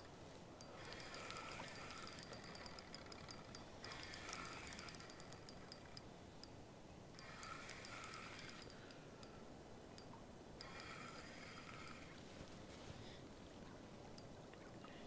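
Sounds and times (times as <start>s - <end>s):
fishing reel whirring and ticking: 0.0s - 6.5s, 7.1s - 9.4s, 10.0s - 12.3s
low outdoor hiss: 0.0s - 15.0s.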